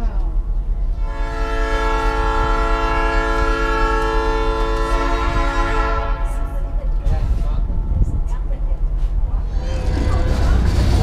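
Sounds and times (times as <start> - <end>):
train rumbling: 0.0 - 11.0
locomotive air horn blast: 1.0 - 6.5, 9.4 - 11.0.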